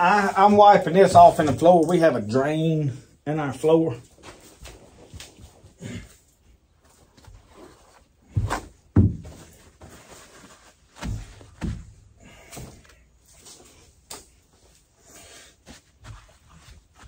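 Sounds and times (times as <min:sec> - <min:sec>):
dull thumps on bench: 0:08.4 - 0:09.5.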